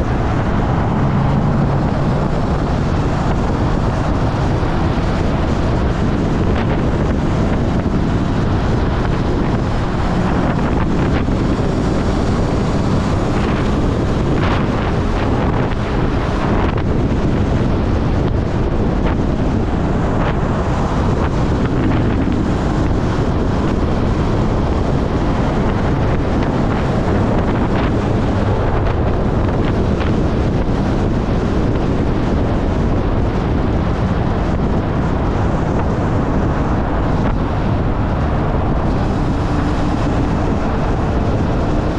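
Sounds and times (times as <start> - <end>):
heavy wind rush on microphone: 0.0 - 41.9
motorcycle running: 0.0 - 41.9.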